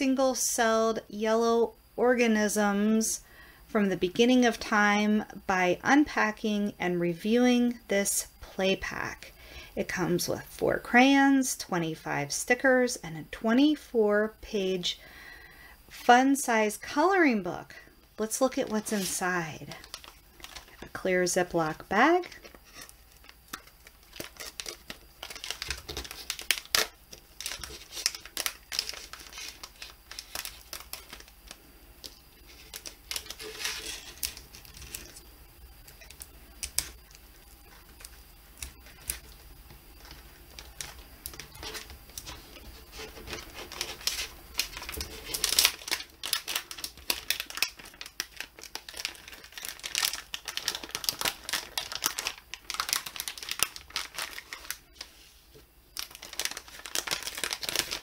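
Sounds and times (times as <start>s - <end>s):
plastic bag crinkling: 18.2s - 55.2s, 55.9s - 58.0s.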